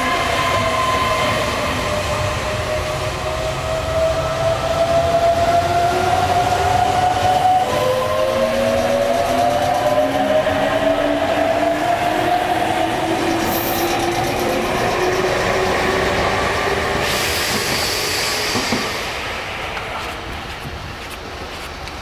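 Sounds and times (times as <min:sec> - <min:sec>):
rail and wheel noise: 0:00.0 - 0:22.0
hiss: 0:17.0 - 0:20.0.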